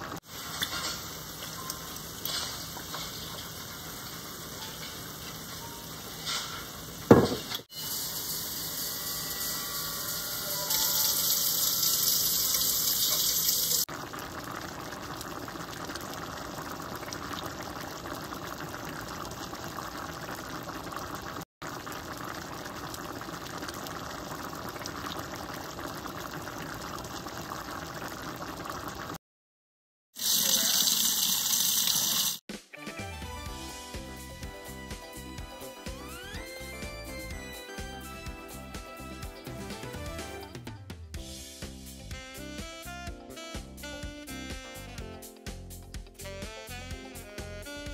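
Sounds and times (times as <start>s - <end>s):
water poured into a pan: 0.0s - 5.4s, 10.5s - 29.2s, 30.2s - 32.4s
faucet running into a colander: 7.0s - 21.4s, 30.2s - 32.4s.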